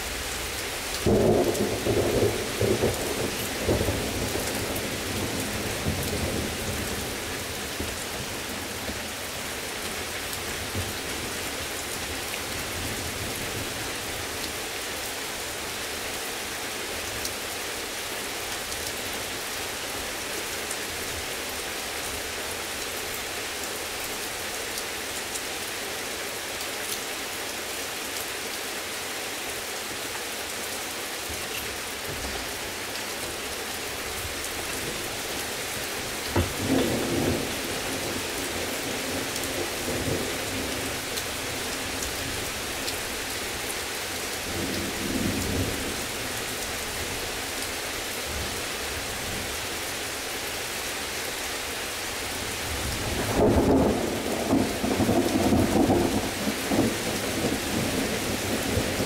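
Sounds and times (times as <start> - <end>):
heavy rain hissing: 0.0 - 59.0.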